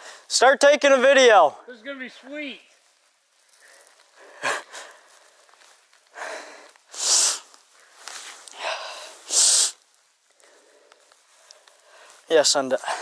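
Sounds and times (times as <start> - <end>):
person breathing hard: 3.5 - 13.0.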